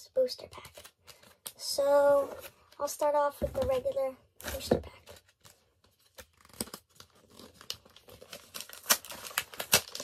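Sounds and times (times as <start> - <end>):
foil wrapper tearing and crinkling: 5.4 - 10.0.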